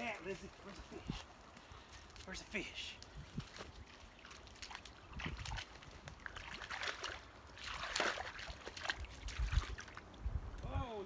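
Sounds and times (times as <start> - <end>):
dogs splashing in water: 3.9 - 10.0.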